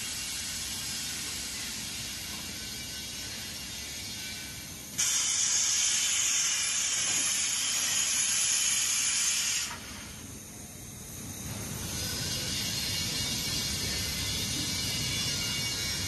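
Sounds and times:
loud gas hiss: 0:05.0 - 0:10.3.

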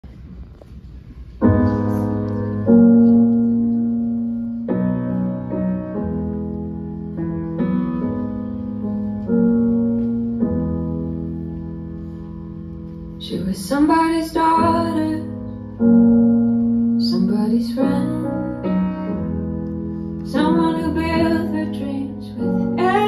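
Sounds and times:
slow piano chords: 0:00.0 - 0:23.0.

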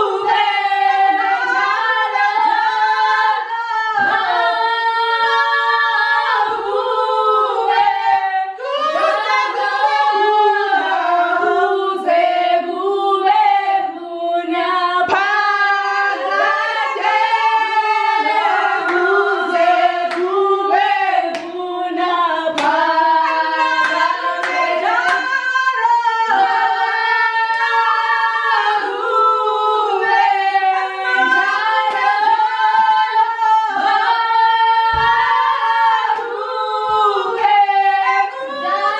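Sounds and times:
women singing in harmony: 0:00.0 - 0:38.9
hand claps: 0:18.8 - 0:21.6, 0:22.5 - 0:25.4, 0:31.8 - 0:32.3.

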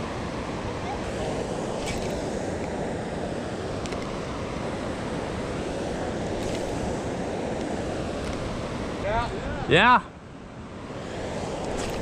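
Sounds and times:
faint clicks: 0:03.8 - 0:04.1.

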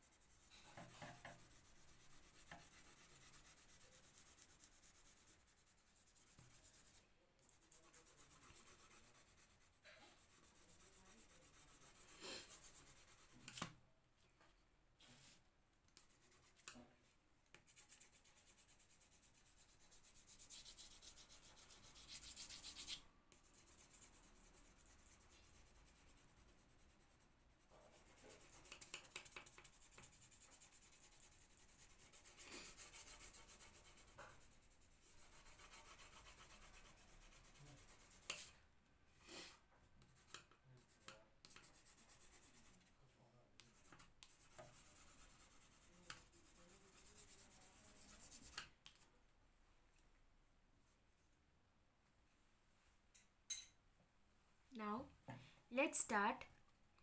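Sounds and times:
pencil rubbing on paper: 0:00.0 - 0:13.6, 0:16.0 - 0:16.8, 0:17.6 - 0:38.6, 0:39.3 - 0:42.9, 0:43.6 - 0:49.0.

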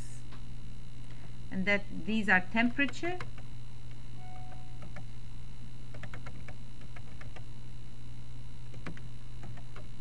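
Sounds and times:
steady low hum: 0:00.0 - 0:10.0
keyboard keys clicking: 0:04.4 - 0:05.1, 0:05.9 - 0:07.4, 0:08.7 - 0:10.0.

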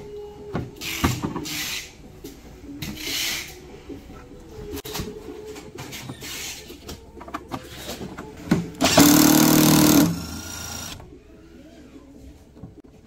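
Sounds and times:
cordless drill whirring: 0:08.8 - 0:11.0.

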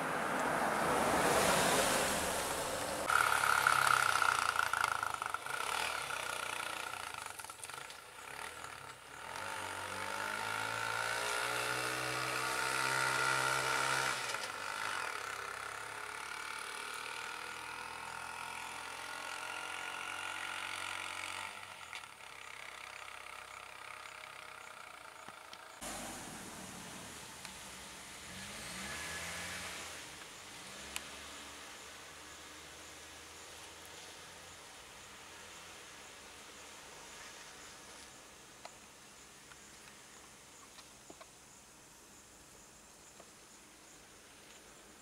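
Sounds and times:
engine revving: 0:00.0 - 0:25.1, 0:25.8 - 0:33.9.

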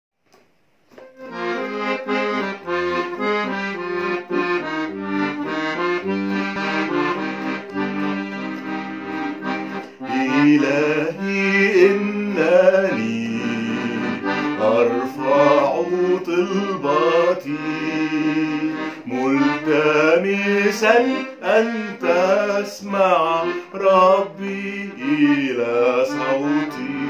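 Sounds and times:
accordion playing hymn chords: 0:00.9 - 0:27.0
man singing: 0:10.1 - 0:27.0.

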